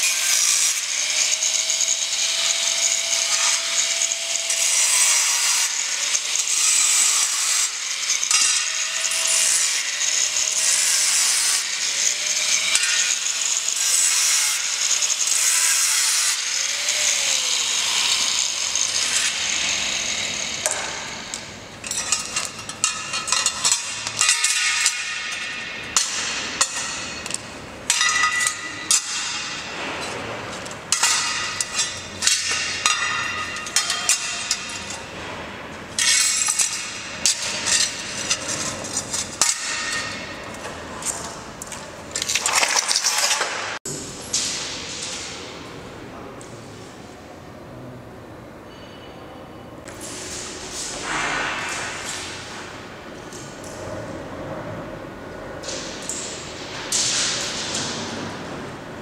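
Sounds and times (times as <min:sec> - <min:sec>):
angle grinder cutting metal: 0:00.0 - 0:35.2, 0:35.9 - 0:40.5
metal parts clinking and knocking: 0:18.0 - 0:35.1.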